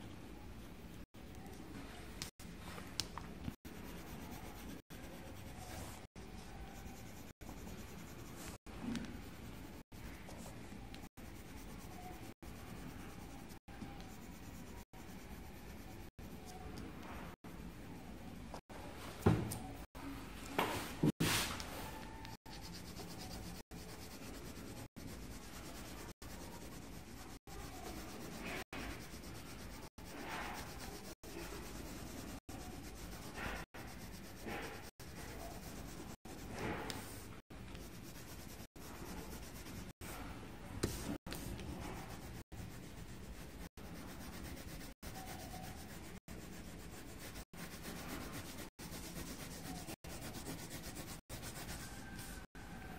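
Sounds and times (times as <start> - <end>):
pencil scratching on paper: 3.5 - 18.7, 21.0 - 52.9.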